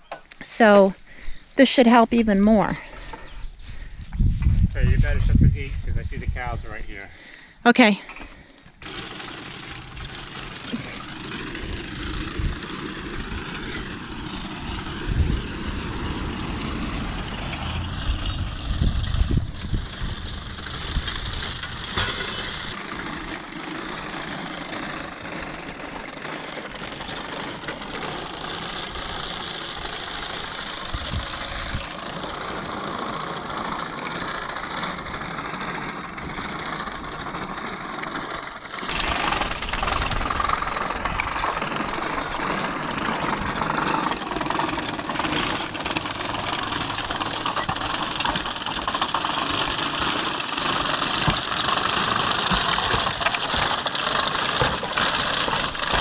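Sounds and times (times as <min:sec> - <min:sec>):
wind rumble on microphone: 0:03.3 - 0:07.0, 0:14.8 - 0:16.2, 0:17.8 - 0:21.4
sickle-bar mower clattering: 0:08.1 - 0:56.0.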